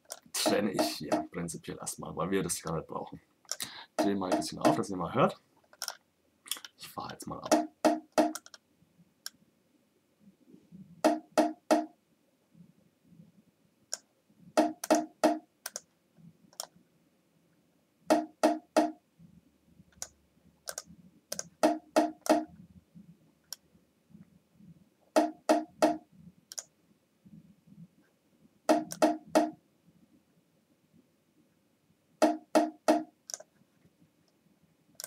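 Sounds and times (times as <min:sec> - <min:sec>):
bongo loop: 0:00.4 - 0:01.4, 0:04.0 - 0:04.8, 0:07.4 - 0:08.4, 0:11.0 - 0:11.9, 0:14.6 - 0:15.4, 0:18.1 - 0:19.0, 0:21.6 - 0:22.5, 0:28.7 - 0:29.6, 0:32.2 - 0:33.1.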